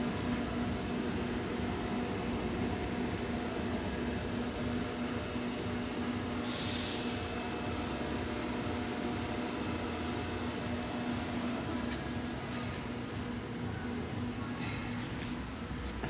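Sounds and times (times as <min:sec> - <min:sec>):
electrical cabinet hum and fan: 0:00.0 - 0:16.0
short hiss: 0:06.4 - 0:07.2.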